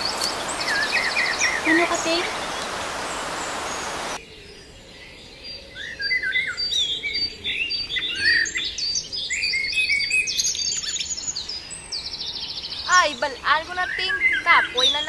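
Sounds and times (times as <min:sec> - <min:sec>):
steady hiss: 0:00.0 - 0:04.2
birds chirping: 0:00.0 - 0:15.0.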